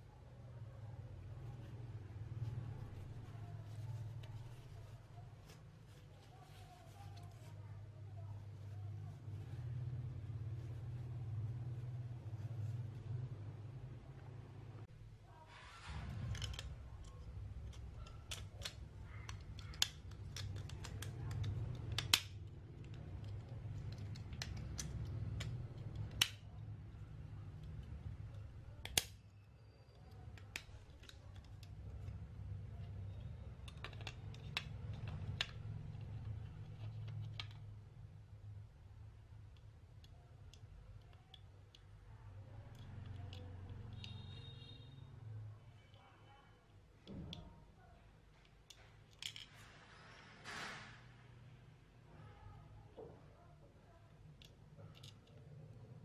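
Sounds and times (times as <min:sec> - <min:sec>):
plastic clicks and taps: 0:16.3 - 0:26.4.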